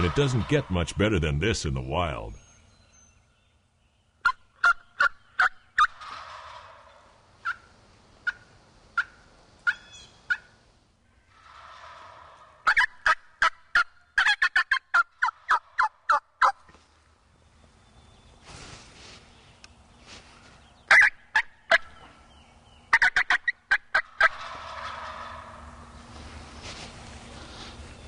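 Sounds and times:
turkey gobbling: 0.0s - 0.7s, 4.2s - 10.6s, 11.3s - 16.6s, 20.9s - 22.1s, 22.9s - 25.9s
turkey yelps: 4.2s - 7.6s, 9.0s - 10.5s, 11.3s - 16.6s, 20.9s - 21.9s, 22.9s - 25.7s.

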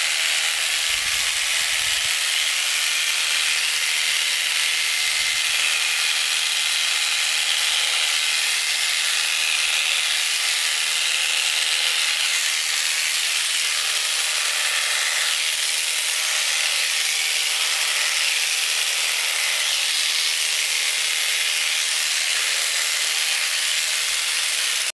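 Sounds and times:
electric shears buzzing: 0.0s - 24.9s.

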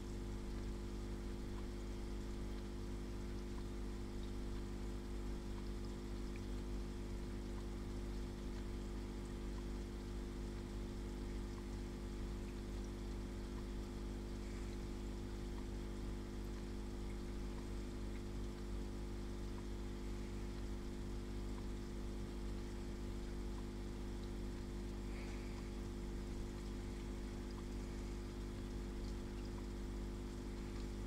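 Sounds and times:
aquarium pump humming: 0.0s - 31.0s
hiss of moving water: 11.6s - 16.3s, 24.5s - 31.0s.

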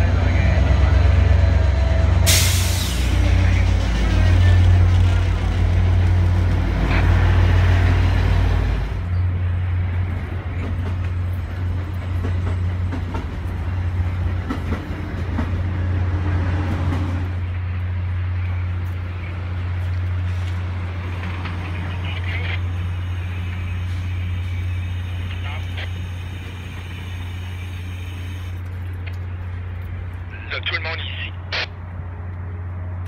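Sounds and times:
train wheel noise: 0.0s - 30.2s
diesel locomotive rumbling: 0.0s - 33.0s.

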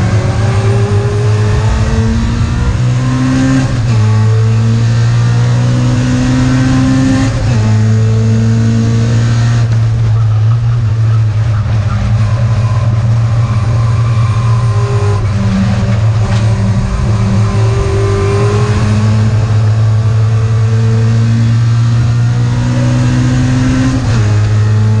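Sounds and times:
race car engine revving: 0.0s - 25.0s.

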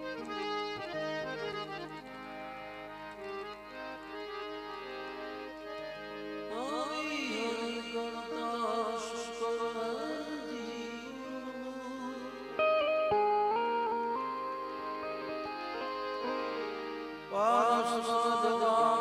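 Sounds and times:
harmonium playing held notes: 0.0s - 19.0s
man singing long notes: 6.5s - 12.7s, 17.3s - 19.0s.

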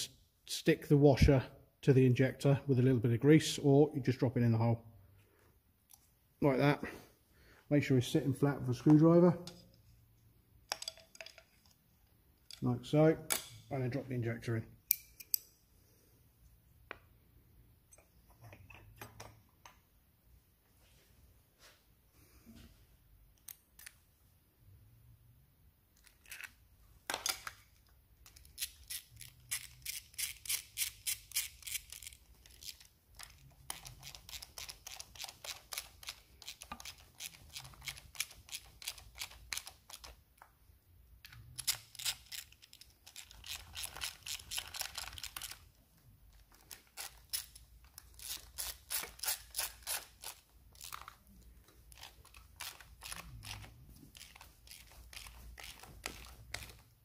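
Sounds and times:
metal parts handled: 10.6s - 11.8s.

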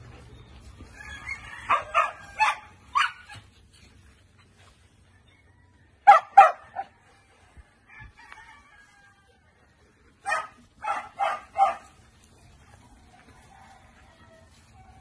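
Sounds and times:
dog barking: 1.7s - 3.3s, 6.0s - 6.9s, 10.2s - 12.0s.

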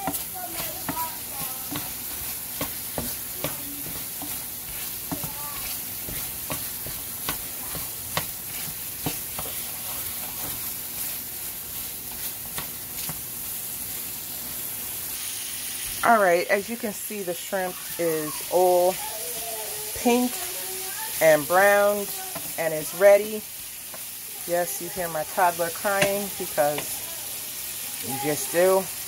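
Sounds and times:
wooden spatula stirring: 0.0s - 15.1s, 16.6s - 27.4s
shrimp sizzling in oil: 0.0s - 29.0s.

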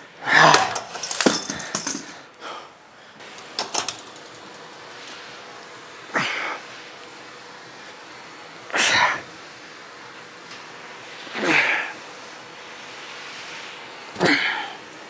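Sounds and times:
person exhaling forcefully: 14.2s - 14.8s.

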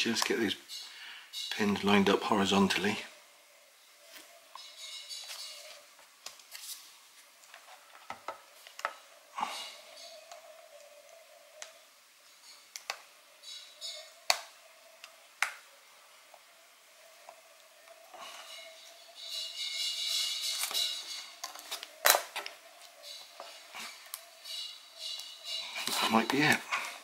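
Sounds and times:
soft rustling: 5.2s - 8.0s.

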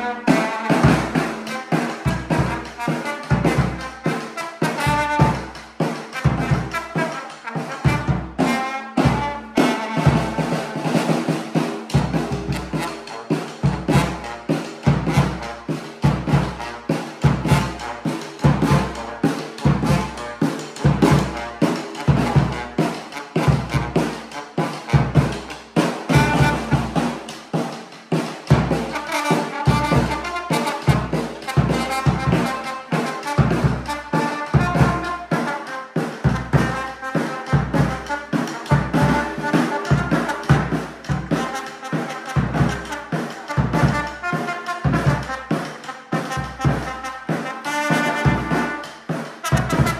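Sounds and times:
trombone playing a melody: 0.0s - 49.9s.

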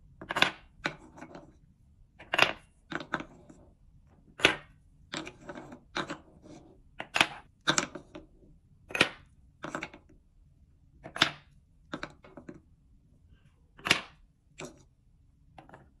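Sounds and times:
wooden balls clacking: 0.2s - 1.6s, 2.2s - 3.5s, 4.4s - 6.4s, 7.0s - 8.3s, 8.9s - 10.1s, 11.0s - 12.6s, 13.8s - 14.8s.

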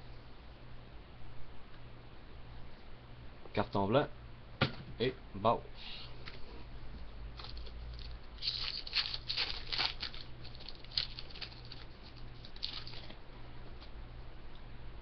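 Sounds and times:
low electrical hum: 0.0s - 15.0s
cards shuffling: 7.4s - 13.2s
foil wrapper crackling: 7.4s - 13.2s.

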